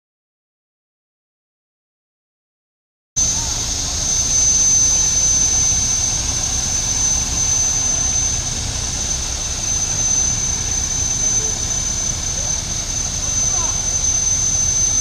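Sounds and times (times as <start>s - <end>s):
high-pitched whine: 3.2s - 15.0s
tractor engine idling: 3.2s - 15.0s.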